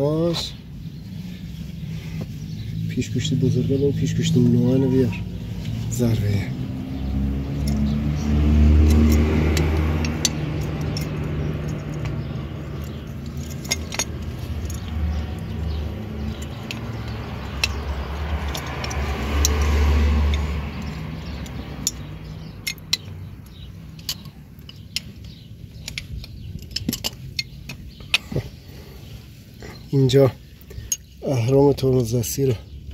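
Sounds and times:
engine humming: 0.0s - 32.9s
metal parts clicking and clinking: 7.5s - 28.7s, 30.7s - 31.2s.

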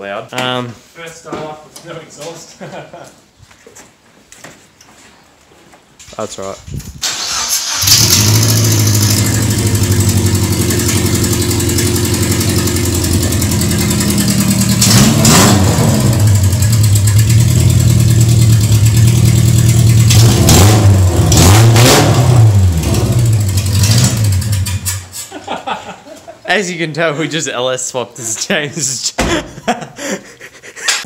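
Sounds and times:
loud car engine idling and revving: 7.8s - 25.0s.

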